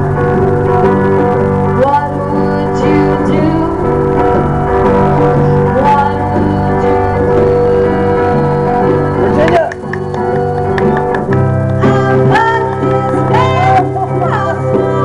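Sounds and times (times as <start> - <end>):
electric guitar: 0.0 - 15.0
woman singing: 1.8 - 3.9, 5.7 - 11.1, 11.8 - 15.0.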